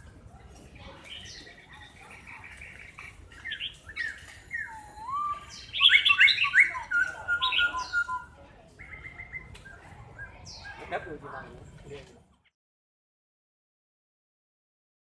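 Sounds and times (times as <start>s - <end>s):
bird singing whistled notes: 1.0s - 10.9s.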